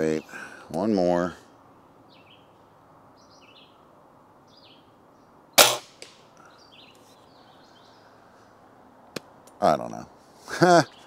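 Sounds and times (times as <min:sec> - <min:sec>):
birds chirping: 0:00.0 - 0:11.0
air gun shot: 0:05.6 - 0:06.2.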